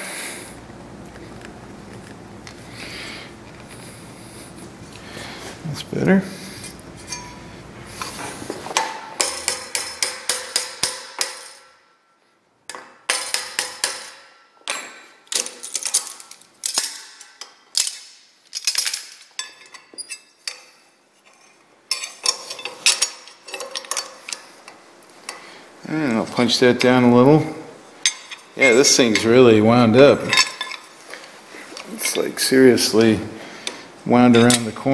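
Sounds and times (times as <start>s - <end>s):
hammer striking punch on metal: 8.8s - 11.8s, 12.7s - 14.4s.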